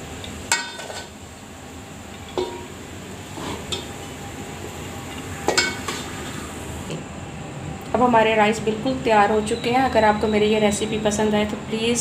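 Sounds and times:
metal spoon clinking on dishes: 2.4 - 2.7, 5.5 - 6.0.

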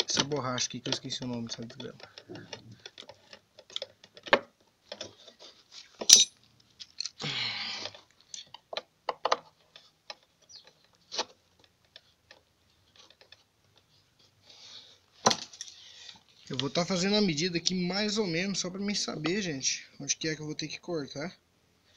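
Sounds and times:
small metal parts clinking: 6.0 - 7.2.

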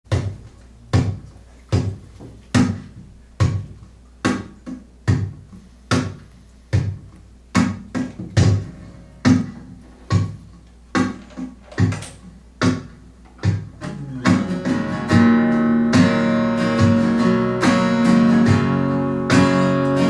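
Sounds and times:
percussive acoustic guitar: 0.1 - 12.0, 12.6 - 20.0.

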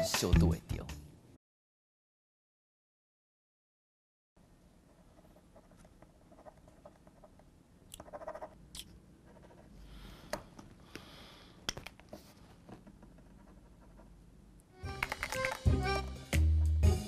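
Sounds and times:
correction pen scratching and clicking: 7.9 - 9.5.

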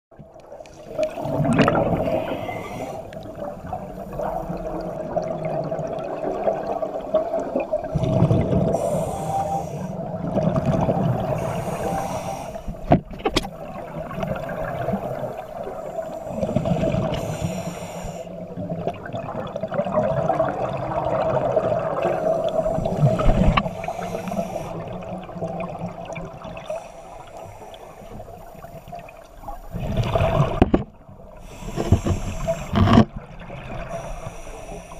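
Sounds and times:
exhaled bubbles rumbling: 0.1 - 17.5, 18.4 - 26.7, 28.1 - 34.4
regulator hissing inhale: 2.0 - 3.3, 8.7 - 10.1, 11.2 - 12.9, 14.9 - 18.5, 22.0 - 25.0, 26.6 - 28.9, 31.4 - 32.8, 33.8 - 34.9.

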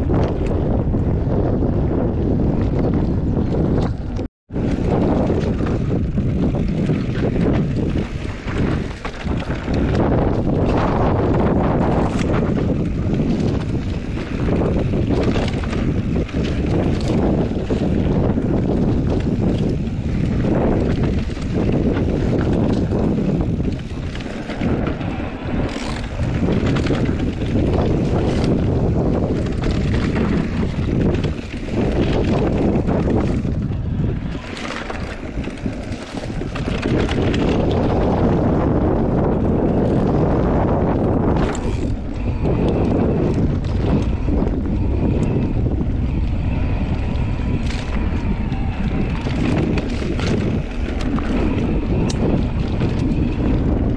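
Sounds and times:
wind buffeting microphone: 0.0 - 53.9.

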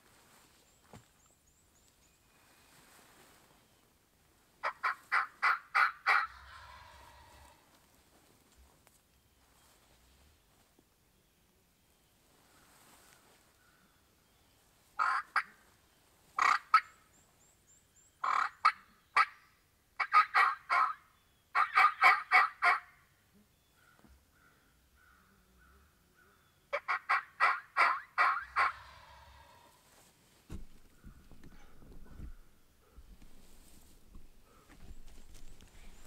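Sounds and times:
turkey calling: 4.6 - 7.6, 15.0 - 15.6, 16.4 - 16.9, 18.2 - 19.4, 20.0 - 21.0, 21.6 - 22.9, 26.7 - 29.8.

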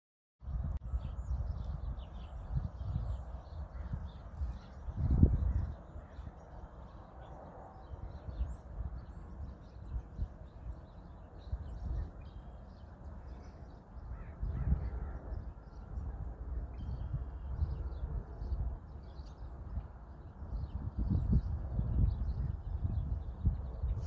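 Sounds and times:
wind buffeting microphone: 0.4 - 24.0
birds chirping and calling: 0.9 - 16.1, 16.7 - 24.0.

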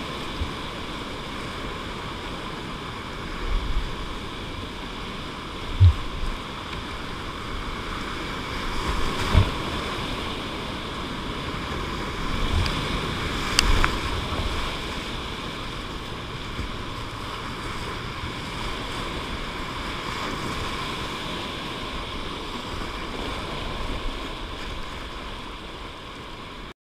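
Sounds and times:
whitewater rapids rushing: 0.0 - 26.7
water splashing over camera: 3.4 - 25.4
sharp thumps: 5.8 - 6.2.

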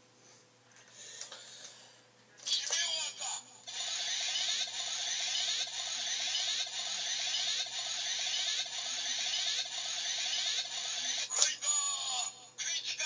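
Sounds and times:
buzzy electronic toy loop: 3.7 - 12.3.

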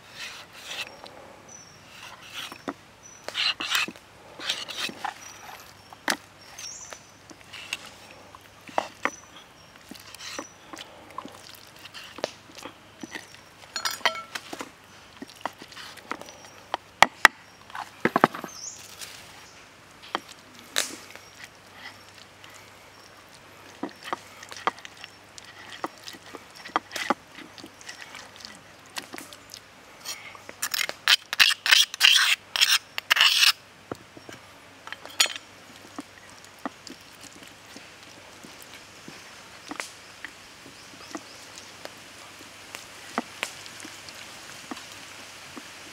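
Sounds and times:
marinade scraped from stone mortar: 0.0 - 1.0, 1.9 - 9.2, 9.8 - 16.5, 30.0 - 33.6.

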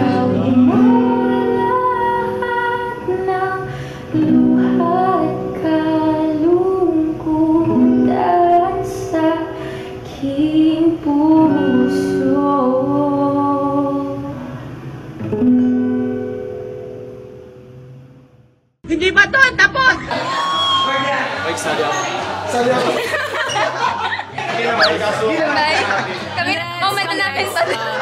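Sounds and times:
woman singing: 0.0 - 14.4
acoustic guitar: 0.0 - 18.6.

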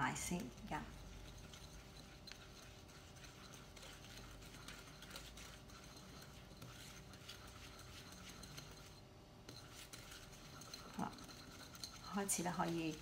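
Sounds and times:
whisk scraping glass bowl: 0.0 - 13.0.

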